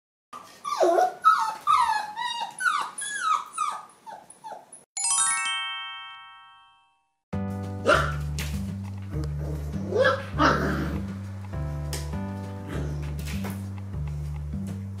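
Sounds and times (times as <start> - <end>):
puppy yipping and whimpering: 0.4 - 4.9, 9.9 - 10.7
bright chime chord: 5.0 - 7.2.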